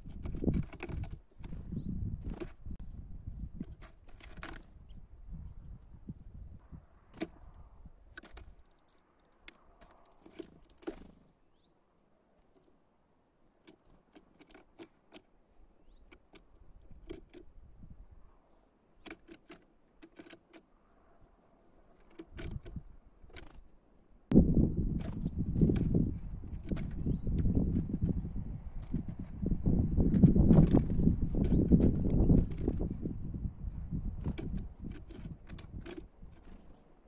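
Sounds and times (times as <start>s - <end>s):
birds pecking on plastic feeder: 0.0s - 2.6s, 3.6s - 5.0s, 7.1s - 11.4s, 13.6s - 15.3s, 15.9s - 17.5s, 19.0s - 23.7s, 24.9s - 33.0s, 34.0s - 37.0s
wind rumble on microphone: 0.0s - 8.6s, 16.6s - 18.4s, 22.3s - 23.4s, 24.3s - 36.8s
faint high bird chirps: 4.8s - 5.8s, 11.2s - 11.8s, 15.4s - 16.1s.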